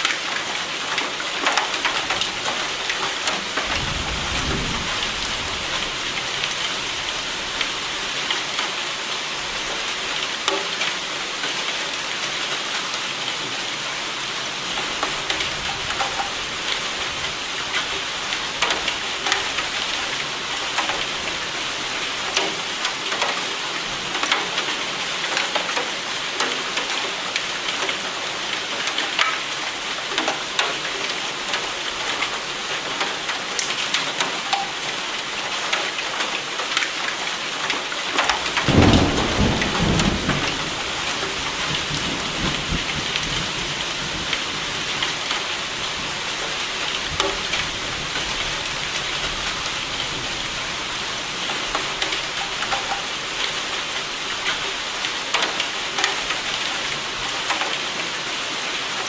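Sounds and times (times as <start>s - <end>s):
rain pattering: 0.0s - 59.0s
thunder rumbling: 3.6s - 6.0s, 38.6s - 44.3s.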